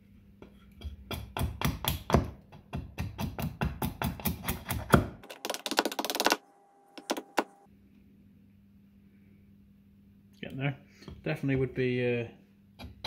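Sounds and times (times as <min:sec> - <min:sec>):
axe chopping wood: 0:01.1 - 0:05.2.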